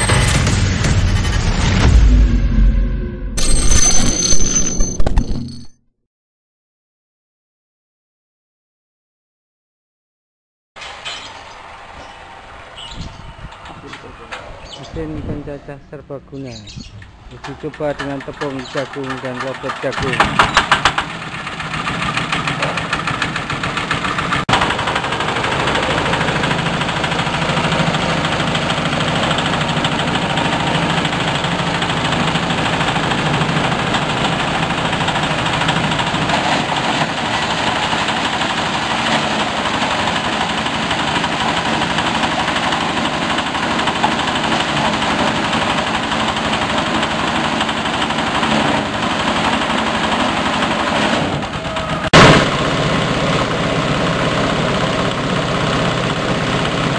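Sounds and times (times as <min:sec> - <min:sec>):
engine driving a chopper-grinder: 0:00.0 - 0:04.8, 0:17.3 - 0:56.9.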